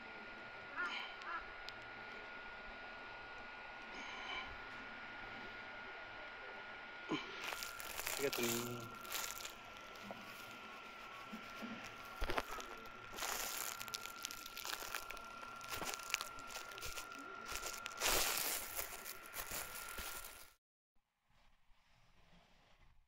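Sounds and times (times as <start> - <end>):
rustling and crinkling: 7.1 - 20.6.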